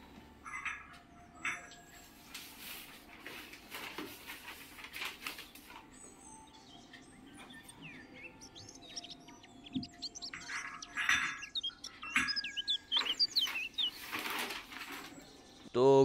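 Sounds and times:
small birds chirping: 0.0s - 16.0s
newspaper rustling: 2.0s - 6.0s, 12.9s - 15.7s.

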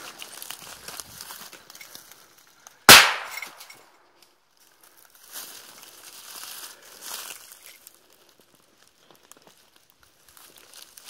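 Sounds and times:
footsteps crunching dry leaves: 0.0s - 3.7s, 4.6s - 11.0s
loud gunshot: 2.9s - 3.6s.

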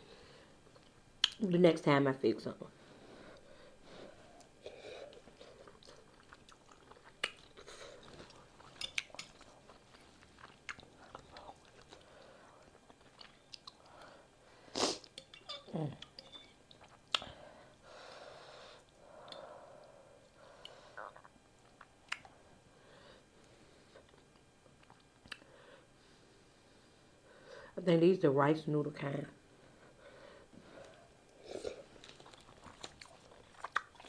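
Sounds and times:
wet chewing sounds: 4.3s - 14.1s, 30.8s - 34.0s.

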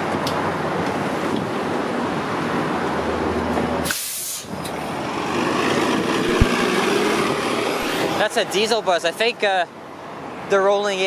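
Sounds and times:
diesel bus engine running: 0.0s - 10.4s
air brakes hissing: 3.8s - 4.7s.

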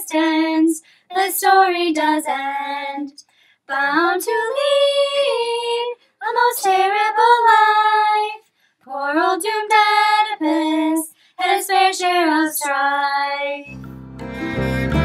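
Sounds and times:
instrumental music: 13.7s - 15.0s.

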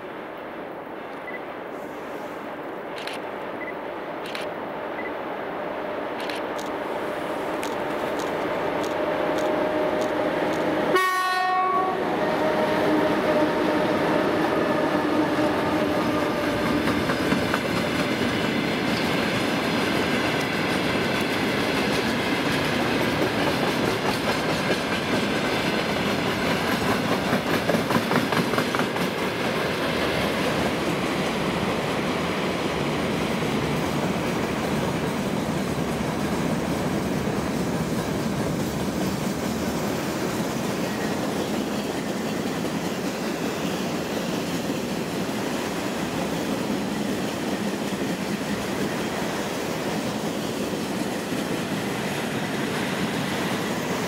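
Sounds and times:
diesel locomotive engine drone: 1.0s - 54.0s
train wheels clattering over rail joints: 16.3s - 31.0s.

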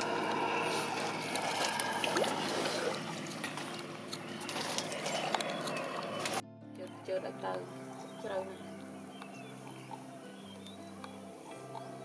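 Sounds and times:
paddle splashing water: 0.0s - 6.4s.

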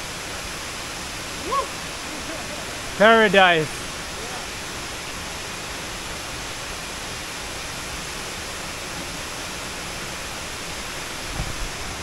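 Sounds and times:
waterfall pouring into pool: 0.0s - 12.0s.

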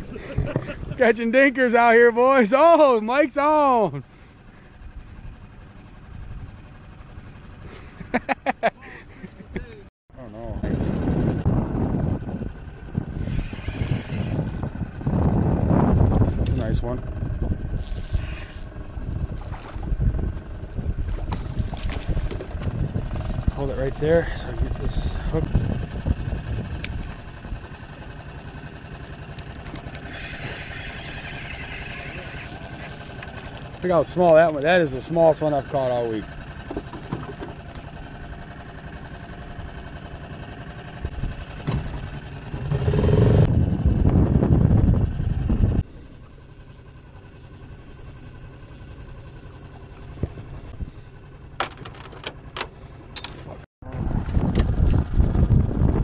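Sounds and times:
outboard motor running: 0.0s - 56.0s
wind: 0.0s - 56.0s
water noise: 10.6s - 38.5s
fishing reel clicking: 13.1s - 14.7s, 17.7s - 18.7s, 29.3s - 34.6s, 46.1s - 50.7s.

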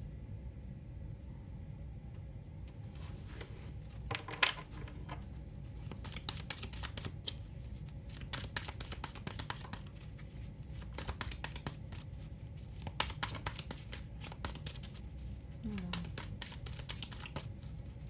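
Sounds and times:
low steady hum: 0.0s - 18.0s
cards being shuffled: 3.2s - 18.0s.

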